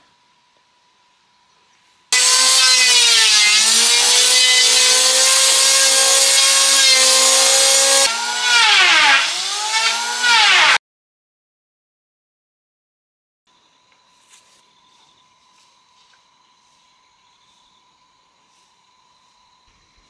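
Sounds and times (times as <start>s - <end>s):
power tool cutting wood: 2.2s - 10.8s.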